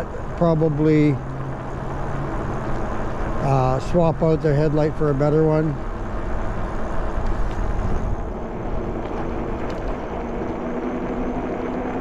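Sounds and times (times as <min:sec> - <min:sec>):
wind on microphone: 0:06.2 - 0:12.0.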